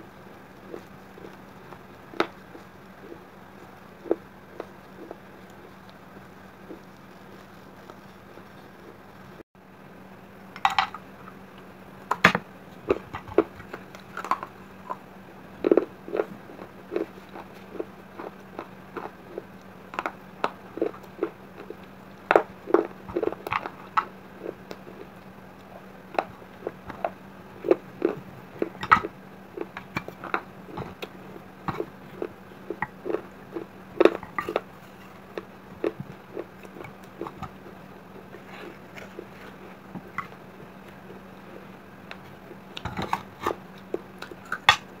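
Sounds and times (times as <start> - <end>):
chewing crunchy clay shards: 12.8 - 44.9.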